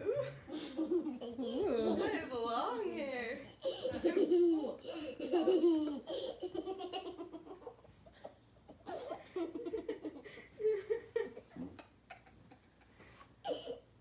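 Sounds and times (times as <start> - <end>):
girl laughing: 3.6 - 7.7.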